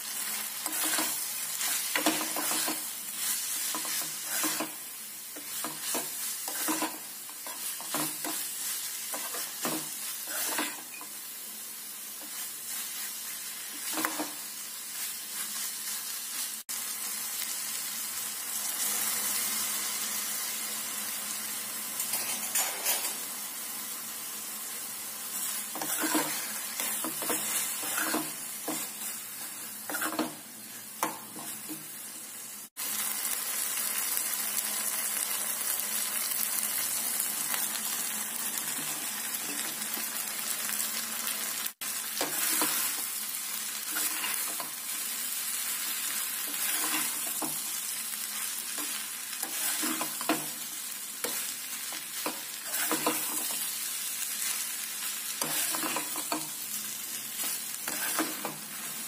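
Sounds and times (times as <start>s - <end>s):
hot oil sizzling: 0.0s - 59.0s
spoon scraping and knocking pan: 0.6s - 4.8s, 5.4s - 11.1s, 13.7s - 14.4s, 25.4s - 30.4s, 31.0s - 31.9s, 42.2s - 43.0s, 46.5s - 47.7s, 48.8s - 50.6s, 51.2s - 53.7s, 55.4s - 56.6s, 57.4s - 58.8s.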